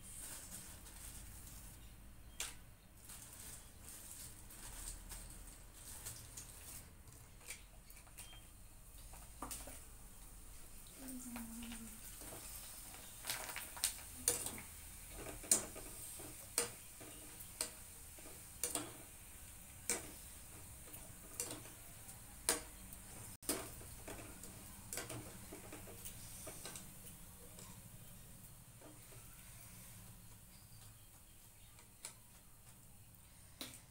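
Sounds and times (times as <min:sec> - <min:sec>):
food sizzling in hot oil: 0:08.9 - 0:30.4
metal spoon scraping a pan: 0:14.2 - 0:19.1.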